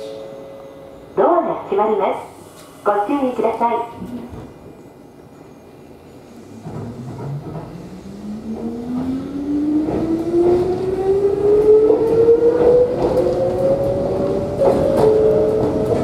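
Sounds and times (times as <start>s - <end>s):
train running gear rumble: 4.0s - 16.0s.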